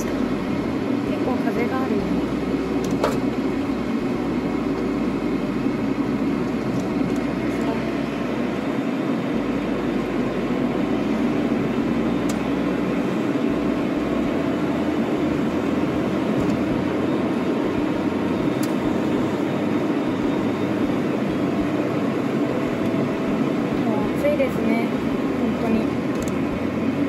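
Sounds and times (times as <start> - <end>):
truck engine and road noise: 0.0 - 27.0.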